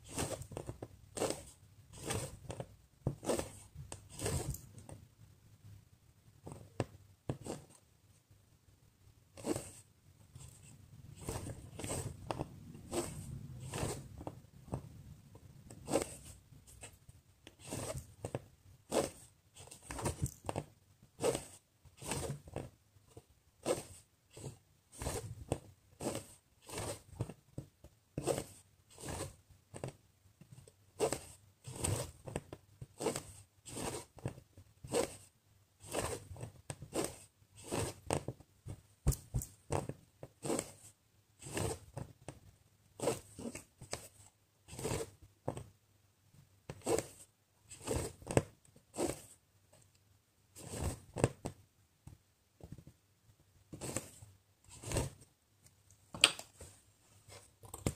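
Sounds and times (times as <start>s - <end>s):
thread pulled through fabric: 0.0s - 4.9s, 9.3s - 14.8s, 15.7s - 22.7s, 23.6s - 27.3s, 31.0s - 38.3s, 39.0s - 42.2s, 43.0s - 45.2s, 46.7s - 49.4s, 50.6s - 51.4s.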